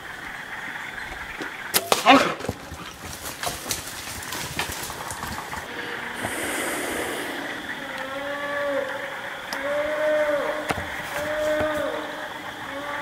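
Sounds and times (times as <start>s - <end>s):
rustling: 1.9s - 5.7s
bear moaning: 5.7s - 13.0s.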